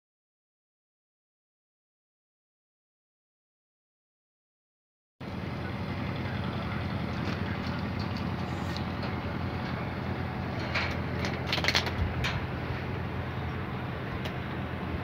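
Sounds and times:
low engine drone: 5.2s - 15.0s.

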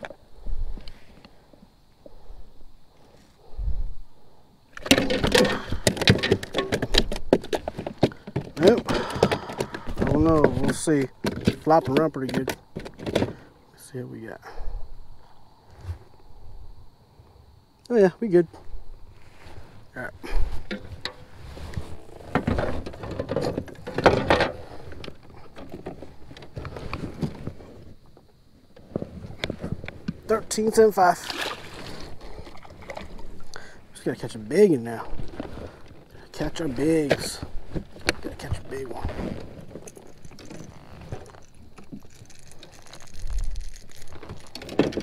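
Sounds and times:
fishing tackle clicking and rustling: 4.7s - 13.4s, 20.3s - 28.0s, 35.1s - 45.0s
board bumping against kayak hull: 4.8s - 13.4s
plastic gear knocking and clattering: 4.9s - 13.3s.

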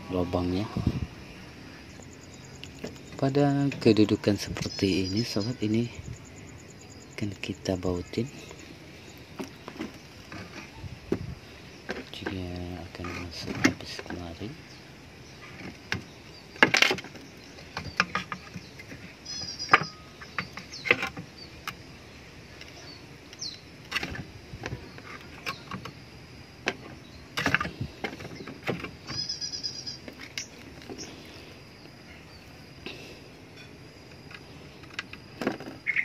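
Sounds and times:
wooden knocks and clicks: 15.5s - 21.8s, 26.6s - 29.3s.

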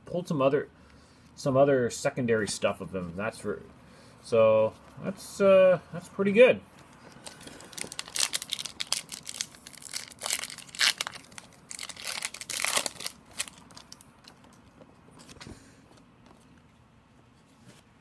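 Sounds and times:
cards being handled: 6.8s - 16.8s
foil wrapper tearing and crinkling: 7.2s - 14.4s.

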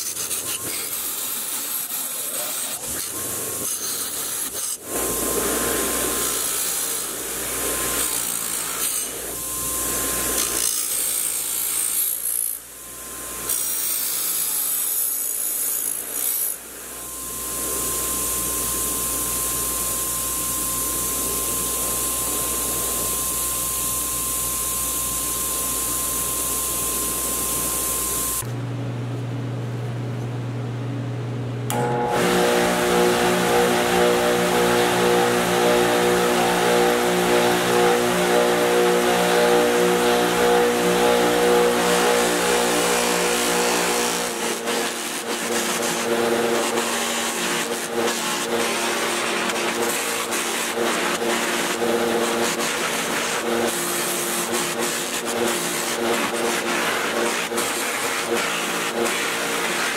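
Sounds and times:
low motor hum: 28.4s - 44.4s
power tool whining: 31.7s - 59.9s.

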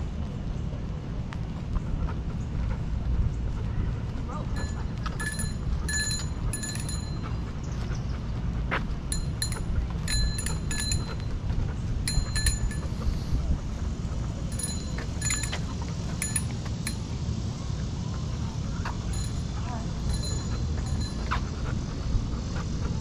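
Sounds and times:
steady low rumble: 0.0s - 23.0s
dog tags jingling: 4.5s - 7.4s, 9.1s - 11.3s, 12.0s - 13.0s, 14.4s - 17.1s, 19.0s - 21.7s.

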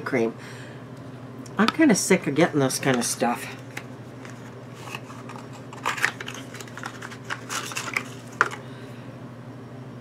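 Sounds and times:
plastic tube and box handled: 3.7s - 8.6s.

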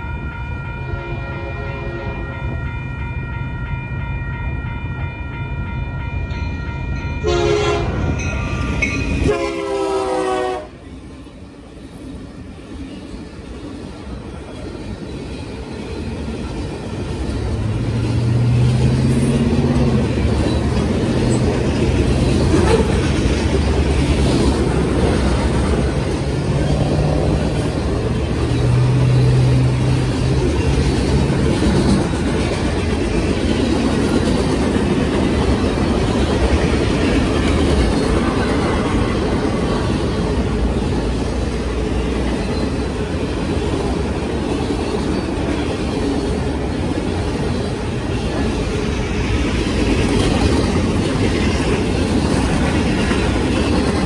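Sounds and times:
freight train rumbling past: 0.0s - 54.0s
locomotive horn blowing: 0.8s - 2.5s, 7.2s - 8.2s, 9.2s - 10.8s.

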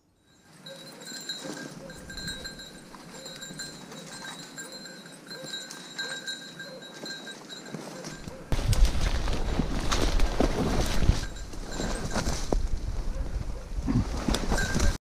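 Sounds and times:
dog collar bell jingling: 0.0s - 8.5s
steps through dry brush: 6.9s - 13.4s.

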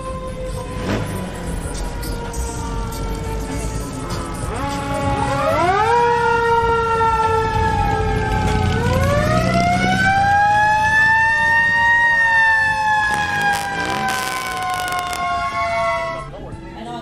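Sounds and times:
siren wailing: 9.3s - 15.6s.

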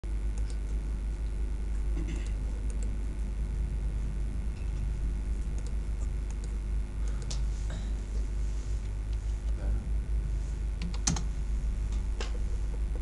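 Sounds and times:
low electrical hum: 0.0s - 13.0s
computer mouse clicks: 2.2s - 2.9s, 5.4s - 7.4s, 10.8s - 11.3s.

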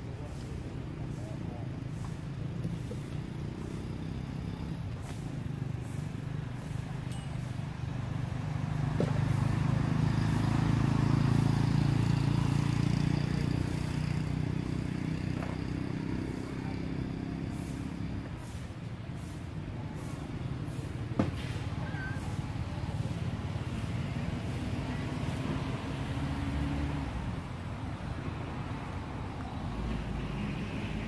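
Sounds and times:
vehicle engine passing by: 0.0s - 31.0s.

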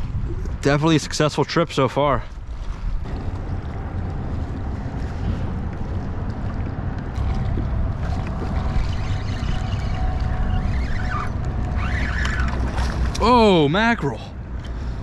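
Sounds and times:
wind buffeting microphone: 0.0s - 13.2s
water lapping at kayak hull: 2.3s - 13.9s.

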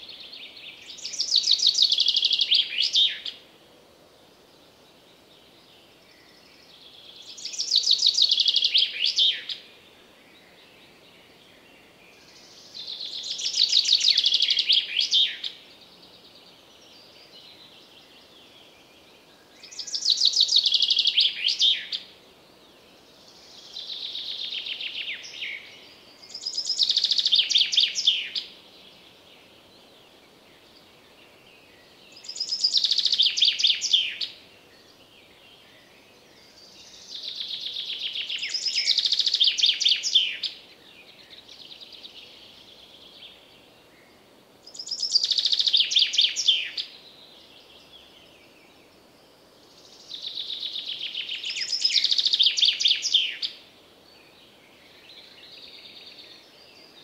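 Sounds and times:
chaffinch singing: 0.0s - 3.4s, 12.2s - 22.1s, 23.3s - 29.5s, 30.6s - 43.6s, 44.6s - 57.0s
other birds calling faintly: 0.0s - 3.6s, 4.2s - 57.0s.

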